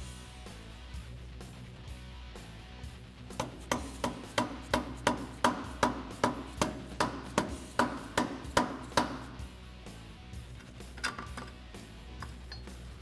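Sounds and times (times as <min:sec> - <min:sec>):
mallet knocking on metal: 0:03.4 - 0:09.4.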